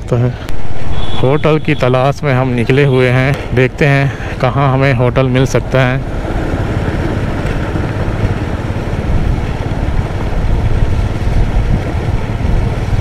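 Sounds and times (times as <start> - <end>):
road noise: 0.0 - 13.0
motorcycle engine running: 6.0 - 13.0.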